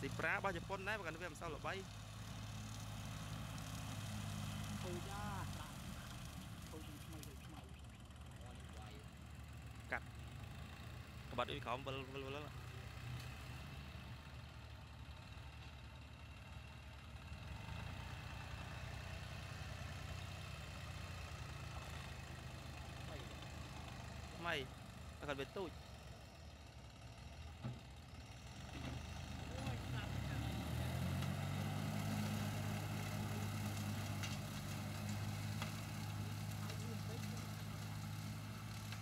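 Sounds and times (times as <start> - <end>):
tractor engine running: 0.0 - 39.0
rotary slasher cutting grass: 32.0 - 39.0.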